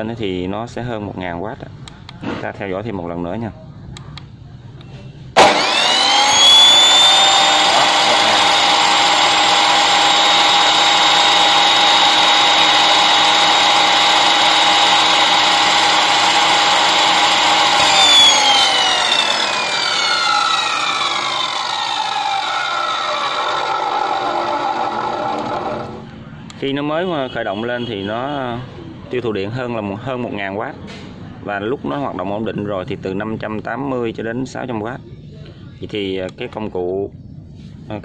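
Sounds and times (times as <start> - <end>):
metal cut-off saw motor whine: 5.4 - 26.1.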